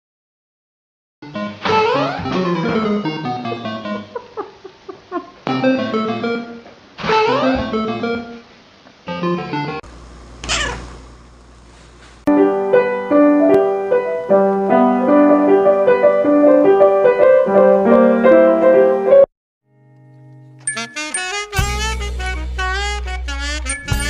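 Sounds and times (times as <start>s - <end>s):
piano notes: 2.2s - 4.1s, 12.3s - 24.0s.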